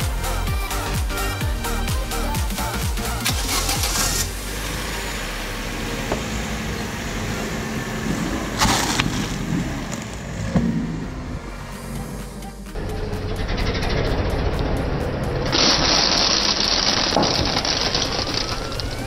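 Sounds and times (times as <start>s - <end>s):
background music: 0.0s - 8.3s, 10.7s - 19.0s
car crushing wooden toothpicks: 15.5s - 19.0s.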